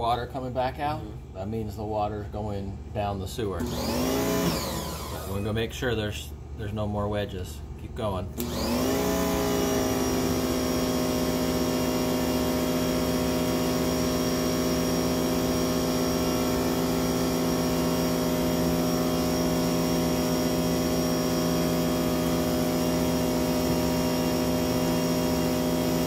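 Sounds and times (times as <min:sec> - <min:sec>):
electric pressure washer running: 0:03.6 - 0:05.6, 0:08.4 - 0:26.0.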